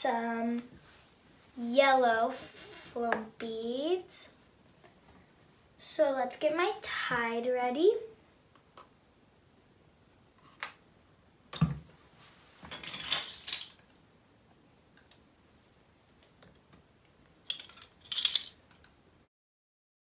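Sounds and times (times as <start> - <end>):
plastic spoons rattling: 12.7 - 13.9, 17.5 - 18.9.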